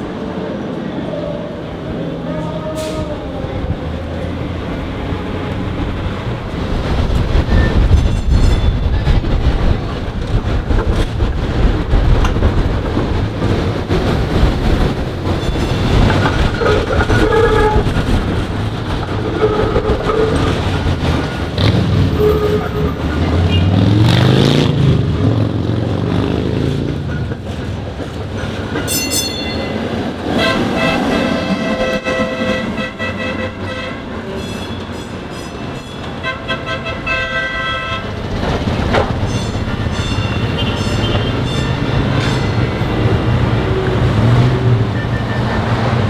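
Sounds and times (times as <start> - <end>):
streetcar motor whine: 0.0 - 46.0
streetcar passing: 0.0 - 46.0
streetcar wheels rumbling on rails: 0.0 - 46.0
streetcar wheels squealing: 7.2 - 10.0, 15.2 - 23.8, 27.1 - 37.1, 38.0 - 46.0.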